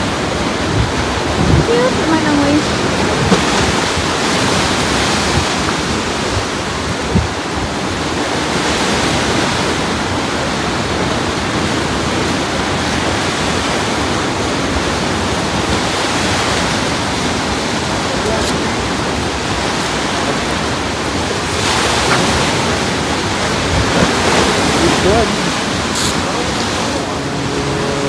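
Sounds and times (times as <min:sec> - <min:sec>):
small waves breaking on sand: 0:00.0 - 0:28.0.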